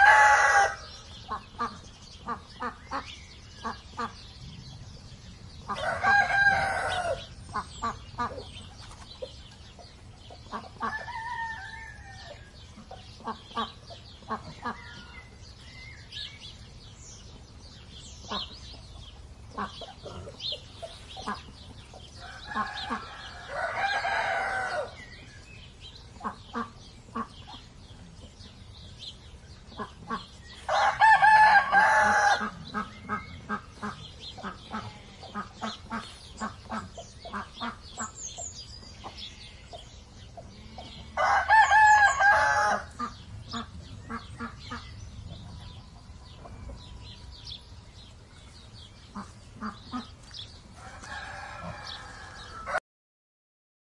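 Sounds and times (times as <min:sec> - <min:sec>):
rooster crowing: 0:00.0 - 0:00.9, 0:05.8 - 0:07.3, 0:10.9 - 0:12.4, 0:22.2 - 0:25.0, 0:30.7 - 0:32.5, 0:41.1 - 0:42.9, 0:50.8 - 0:52.8
poultry calls: 0:00.0 - 0:04.9, 0:05.6 - 0:15.4, 0:18.2 - 0:28.5, 0:29.6 - 0:47.4, 0:48.8 - 0:52.8
small birds chirping: 0:00.0 - 0:52.7.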